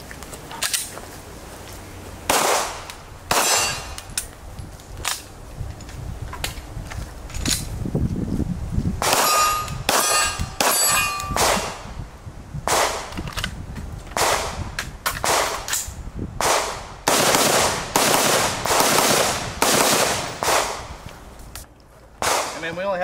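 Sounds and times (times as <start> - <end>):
handgun shots: 2.3 - 4.0
rifle shots: 2.3 - 4.0, 9.0 - 11.8, 14.2 - 14.6, 16.4 - 20.9, 22.2 - 22.7
metallic ringing clang: 3.3 - 4.0, 9.2 - 11.4.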